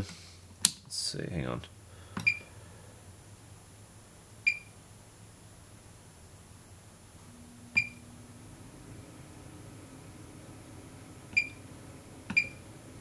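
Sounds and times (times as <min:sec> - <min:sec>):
high electronic beeps: 0:07.6 - 0:08.1.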